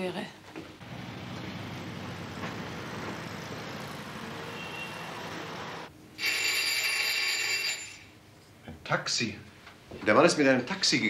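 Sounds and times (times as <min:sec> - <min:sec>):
car engine running: 0:00.8 - 0:04.5
street sound: 0:00.8 - 0:05.9
electric doorbell ringing: 0:06.2 - 0:08.1.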